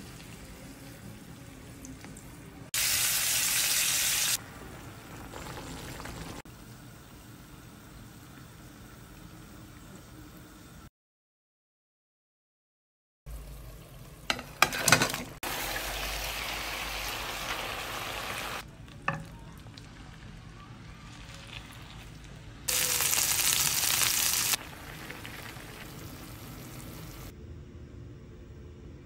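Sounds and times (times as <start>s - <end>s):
food sizzling in oil: 2.7s - 6.4s, 13.3s - 27.3s.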